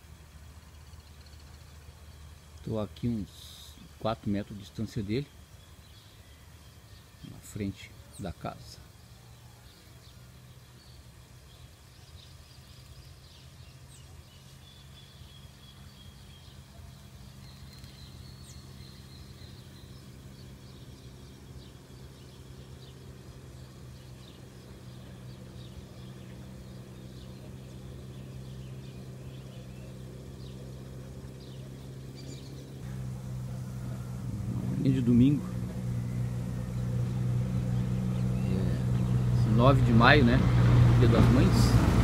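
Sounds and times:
vehicle engine hum: 0.0s - 42.0s
bird chirps and calls: 0.4s - 41.8s.

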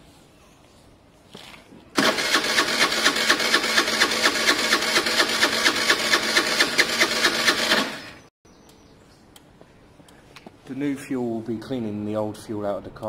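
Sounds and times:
starter motor cranking engine: 2.0s - 8.3s.

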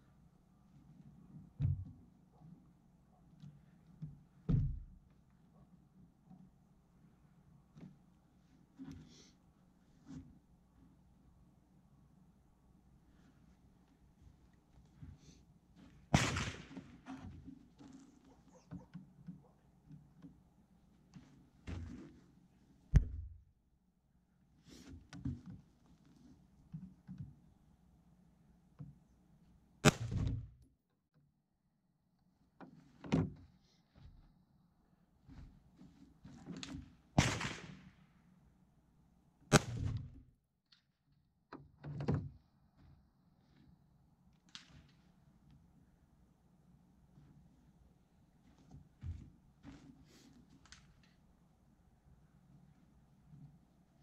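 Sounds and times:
rifle shot with echo: 16.2s - 16.8s, 37.2s - 37.8s.

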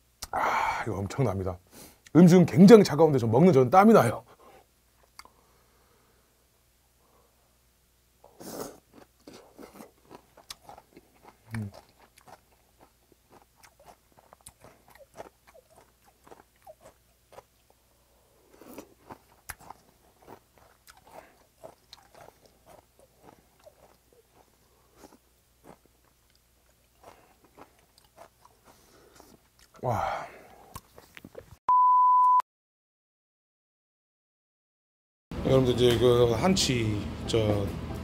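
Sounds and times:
person slurping: 8.2s - 12.0s
wet chewing clicks: 9.0s - 17.8s, 18.6s - 29.8s.

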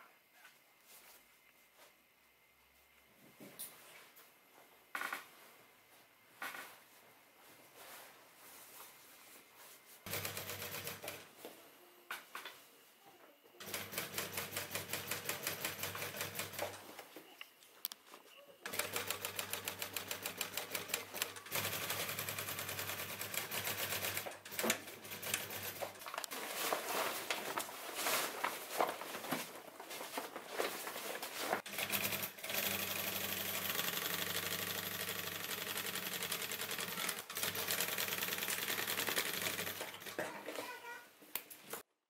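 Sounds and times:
sewing machine stitching: 10.1s - 11.2s, 13.6s - 16.8s, 18.7s - 26.0s, 31.6s - 40.2s.

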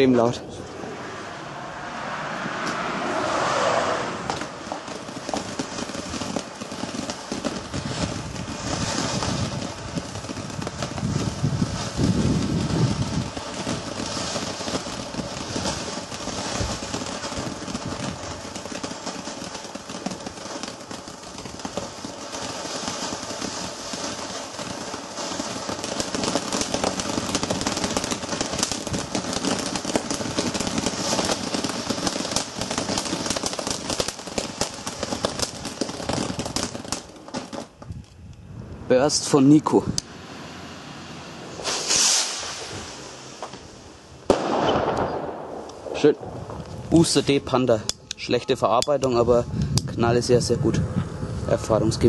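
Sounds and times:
firework fountain hissing: 0.0s - 52.0s
fast crackling pops: 4.2s - 38.4s, 41.6s - 50.0s.

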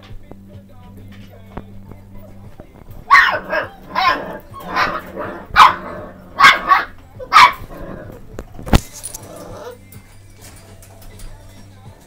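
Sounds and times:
puppy barking: 3.1s - 8.2s.

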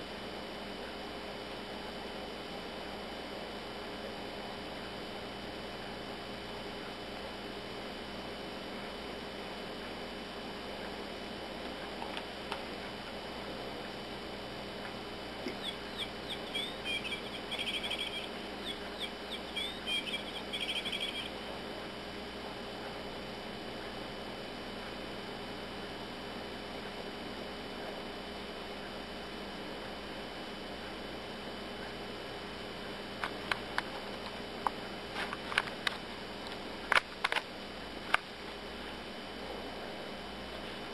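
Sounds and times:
toy bird chirps and trill: 15.5s - 21.3s.

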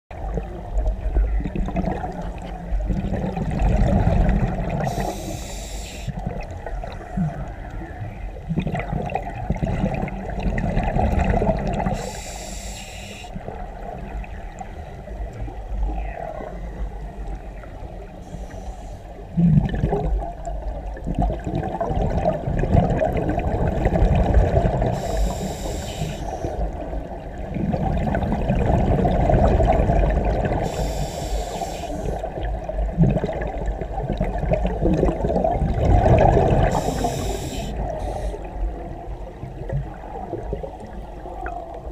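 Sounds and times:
exhaled air bubbling: 0.1s - 41.9s
regulator inhalation hiss: 4.9s - 6.2s, 11.9s - 13.4s, 18.3s - 19.1s, 24.9s - 26.6s, 30.6s - 32.2s, 36.7s - 38.5s.

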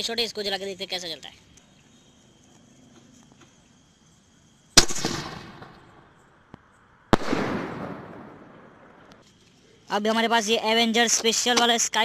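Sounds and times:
firework shells bursting: 4.7s - 9.5s.

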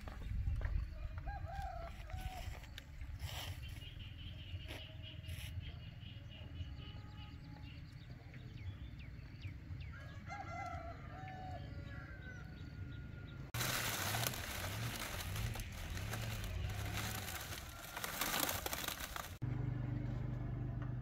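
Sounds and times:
rooster crowing: 1.0s - 2.7s, 9.9s - 13.5s.

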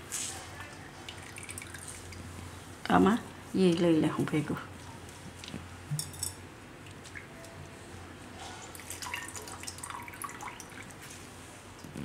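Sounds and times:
water trickling into bowl: 0.5s - 2.5s, 8.7s - 11.1s.

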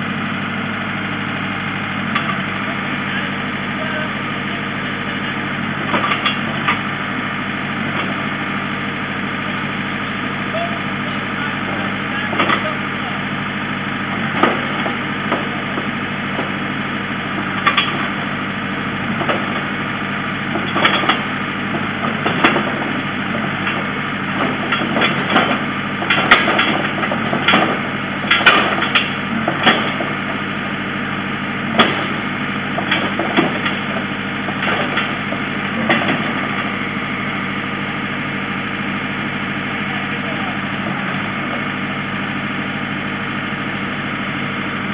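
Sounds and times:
backhoe engine running: 0.0s - 44.9s
bucket clanks and knocks: 20.6s - 30.4s, 31.7s - 36.5s.

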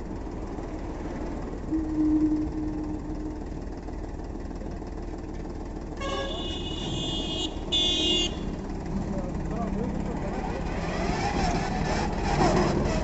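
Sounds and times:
tractor diesel engine running: 0.0s - 13.0s
vehicle horn honking: 6.0s - 8.6s.

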